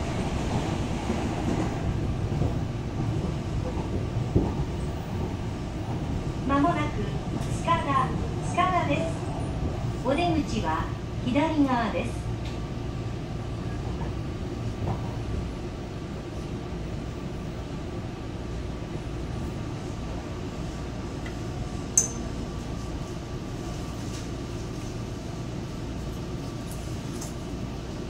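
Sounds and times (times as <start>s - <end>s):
train wheels rumbling on track: 0.0s - 28.0s
sharp clink: 22.0s - 22.3s.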